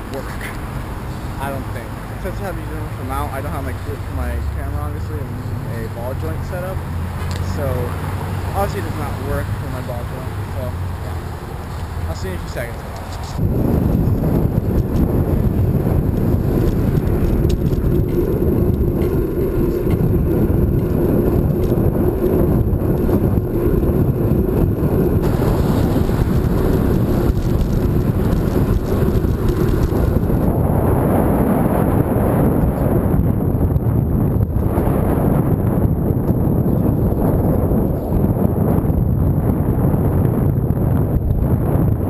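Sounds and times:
wind rumbling on microphone: 0.0 - 42.0.

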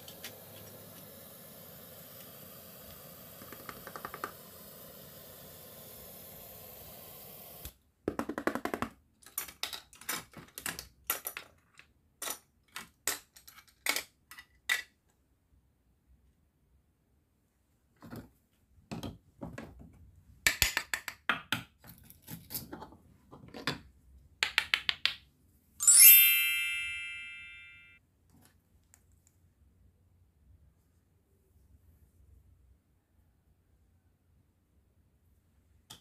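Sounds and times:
steady hiss: 0.0 - 7.7
plastic toys clicking and clacking: 8.3 - 15.0.

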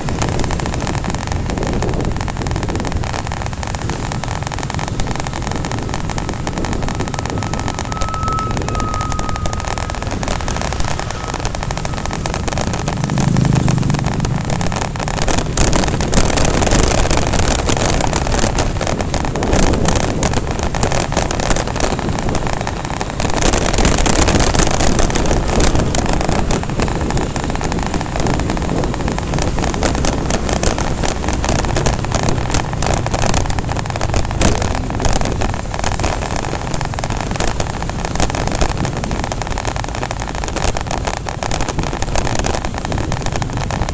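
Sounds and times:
motorcycle engine: 0.0 - 21.4
wind rushing over microphone: 0.0 - 43.9.

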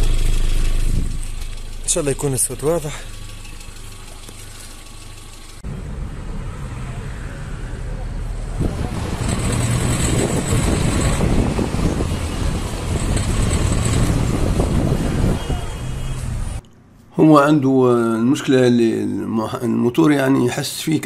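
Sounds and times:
engine rattle: 0.0 - 6.4, 8.3 - 16.6
car engine accelerating: 0.0 - 16.6.

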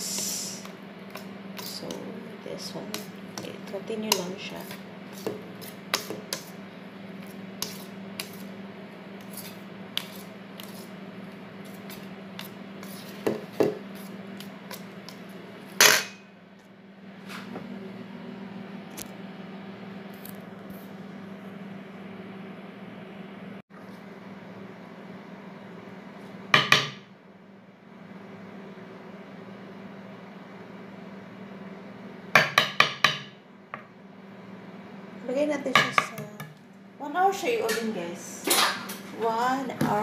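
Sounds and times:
whisk beating batter: 0.1 - 8.6, 9.2 - 15.4.

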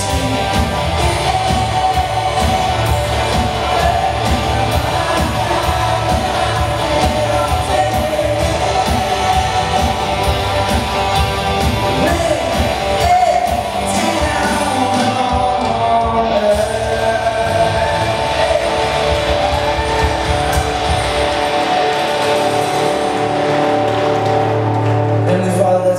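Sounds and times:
person singing: 0.0 - 23.3
drum kit beating: 0.0 - 25.7
guitars and bass: 0.0 - 25.9.

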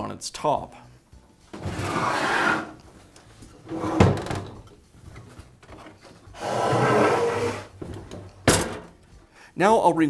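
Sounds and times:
saw scraping on wooden bench: 1.6 - 2.9, 6.3 - 7.7.

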